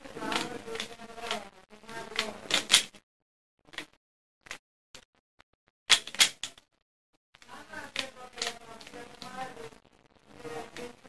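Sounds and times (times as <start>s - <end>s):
puzzle cube clicking: 0.3s - 1.4s, 2.1s - 2.9s, 5.9s - 6.6s, 7.8s - 9.4s.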